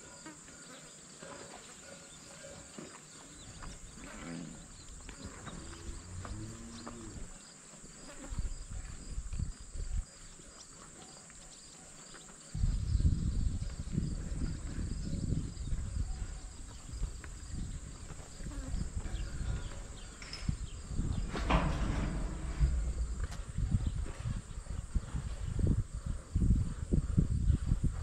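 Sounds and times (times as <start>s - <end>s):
crickets and insects chirping: 0.0s - 28.0s
low rumble on microphone: 17.0s - 28.0s
brief rustle: 21.2s - 23.5s.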